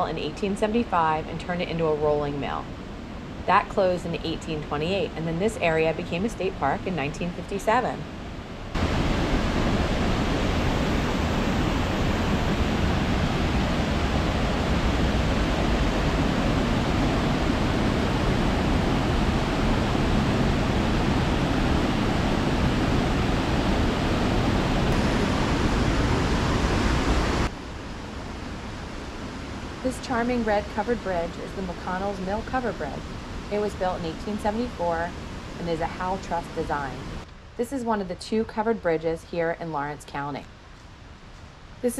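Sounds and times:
water rushing over dam: 8.8 - 27.5.

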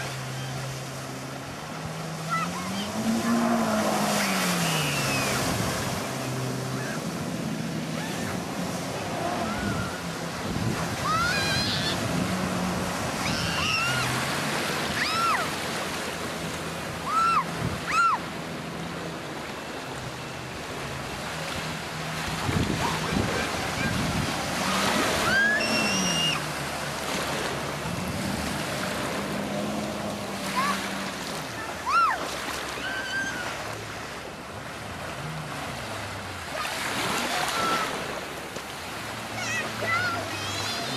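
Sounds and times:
spray and water rushing: 0.0 - 19.0, 19.8 - 34.0
jet ski engine revving: 0.0 - 40.9
short high squeals: 4.2 - 5.5, 13.2 - 14.1, 25.0 - 26.5, 32.8 - 33.6.

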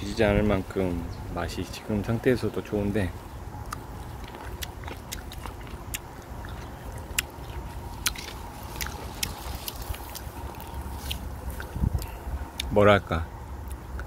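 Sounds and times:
person chewing: 3.6 - 12.7.

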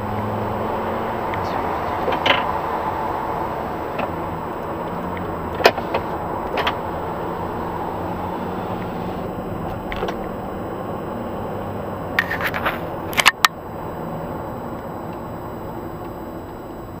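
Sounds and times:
car engine and road noise: 0.0 - 17.0
sharp clicks and knocks: 1.3 - 2.6, 3.9 - 6.9, 9.6 - 10.3, 12.2 - 13.6.

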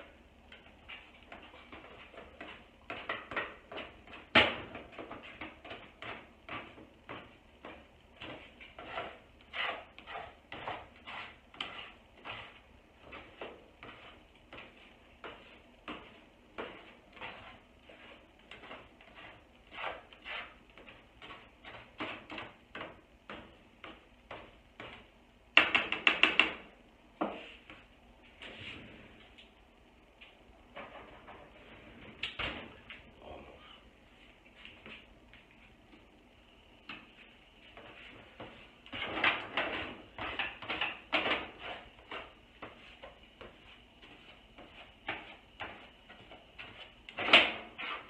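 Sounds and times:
spatula scraping in frying pan: 8.4 - 14.2, 15.3 - 22.3, 47.7 - 48.0
taps on pan: 25.6 - 26.6.

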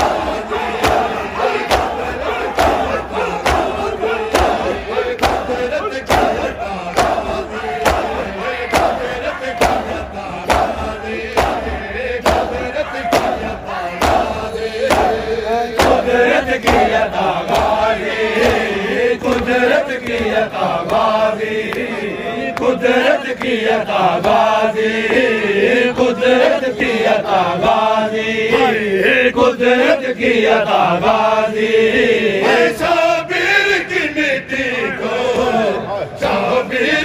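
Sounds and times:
hands slapping chests: 0.0 - 14.3, 14.9 - 16.0, 16.6 - 17.8
men chanting a lament: 0.0 - 37.0.

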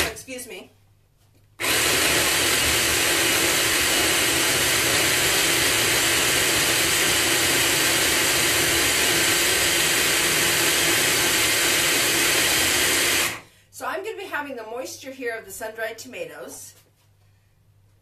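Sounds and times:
food processor whirring: 1.6 - 13.4.

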